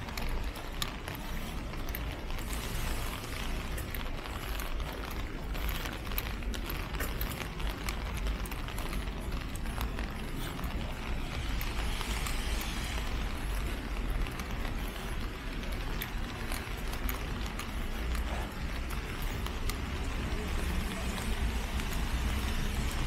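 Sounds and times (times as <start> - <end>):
footsteps on wet pavement: 0.0 - 23.0
traffic on wet roads: 0.0 - 23.0
rain hissing: 2.4 - 4.3, 9.9 - 16.7.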